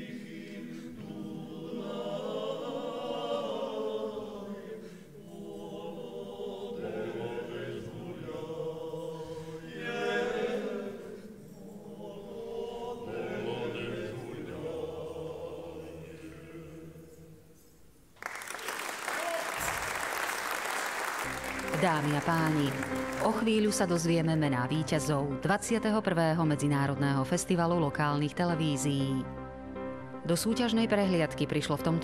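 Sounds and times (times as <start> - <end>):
male group singing a cappella: 0.0 - 17.5.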